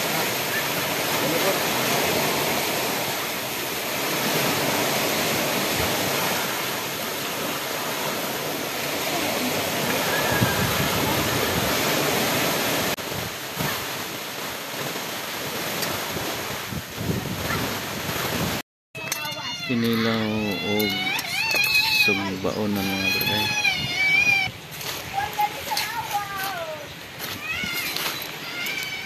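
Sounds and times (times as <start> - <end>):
sea surf on a stony shore: 0.0 - 29.0
wind noise: 9.7 - 14.0, 15.8 - 18.6, 19.5 - 25.8.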